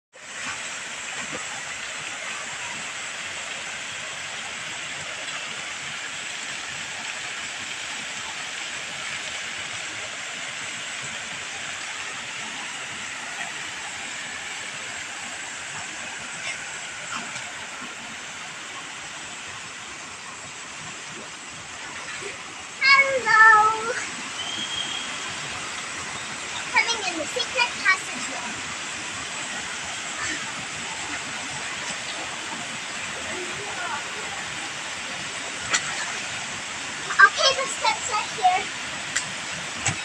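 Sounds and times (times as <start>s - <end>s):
pool water splashing: 0.2s - 40.0s.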